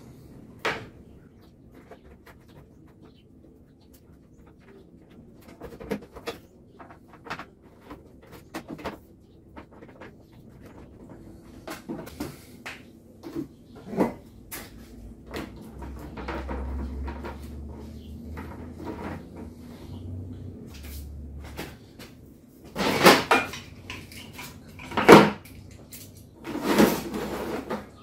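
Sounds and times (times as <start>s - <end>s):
cable knocking and scraping on bench: 15.3s - 19.8s.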